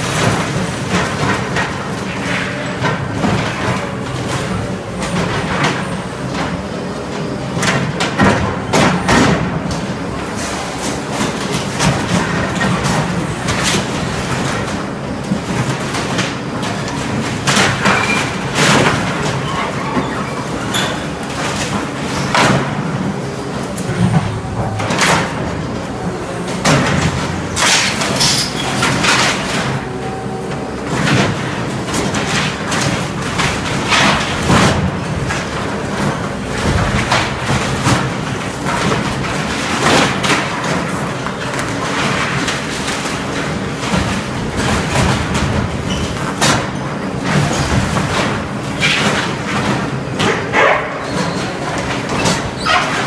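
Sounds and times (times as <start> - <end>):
diesel engine under load: 0.0 - 53.0
wood cracking and splintering: 30.9 - 50.4.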